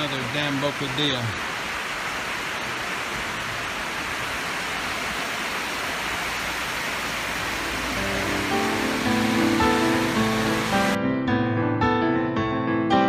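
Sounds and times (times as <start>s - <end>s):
water rushing over weir: 0.0s - 11.0s
music: 7.6s - 13.0s.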